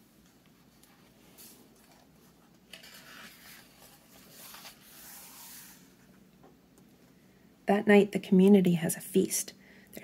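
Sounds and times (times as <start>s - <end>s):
book page turning: 0.7s - 5.9s.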